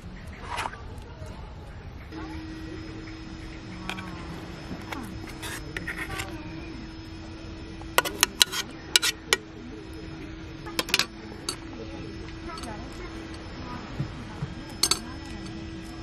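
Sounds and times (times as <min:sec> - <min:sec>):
spoon scraping metal tin: 0:05.2 - 0:06.4, 0:08.0 - 0:09.4.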